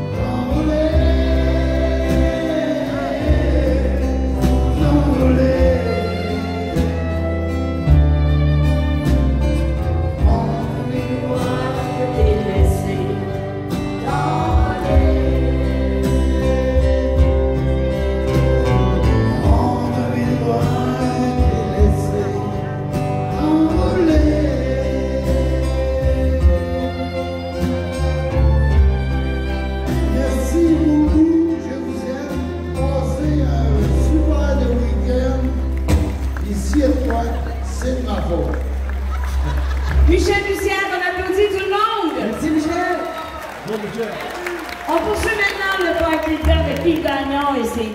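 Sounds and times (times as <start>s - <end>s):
man and woman singing duet: 0.0s - 7.2s, 10.0s - 18.3s, 19.0s - 28.2s, 29.7s - 35.6s
strummed acoustic guitars: 0.0s - 40.4s
bass line: 0.0s - 40.5s
live band playing: 0.0s - 47.9s.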